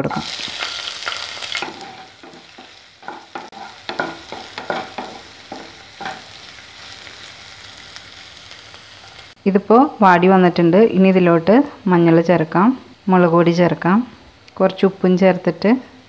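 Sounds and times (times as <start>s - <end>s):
spatula scraping pan: 0.0s - 7.3s
food sizzling in oil: 0.0s - 14.0s.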